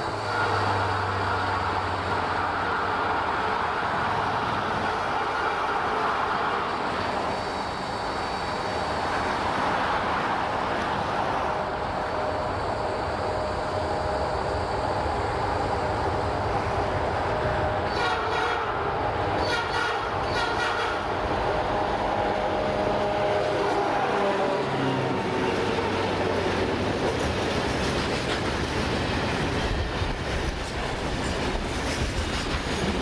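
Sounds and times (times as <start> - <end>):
train horn blasts: 0.0 - 3.5, 17.5 - 26.5
diesel locomotives rumbling: 0.0 - 33.0.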